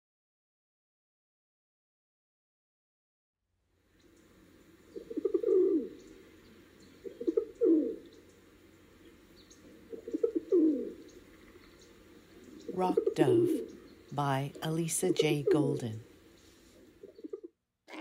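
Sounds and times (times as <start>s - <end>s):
pigeon cooing: 4.9s - 6.2s, 7.0s - 8.1s, 9.7s - 11.7s, 12.5s - 13.8s.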